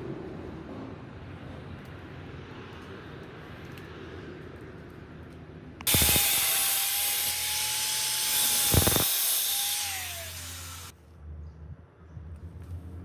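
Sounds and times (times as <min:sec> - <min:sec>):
angle grinder cutting sheet metal: 0:05.9 - 0:10.9.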